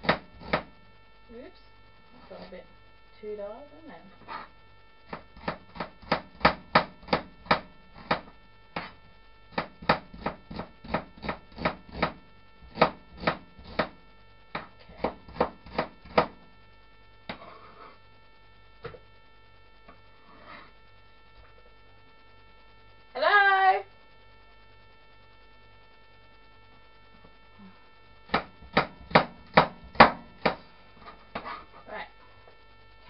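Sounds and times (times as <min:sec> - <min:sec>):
electrical hum: 0:00.0 - 0:33.0
knife chopping on plastic board: 0:28.3 - 0:30.6.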